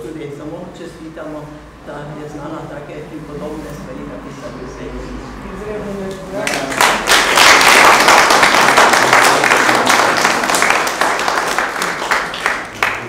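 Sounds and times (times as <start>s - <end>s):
audience applauding: 6.4s - 13.0s.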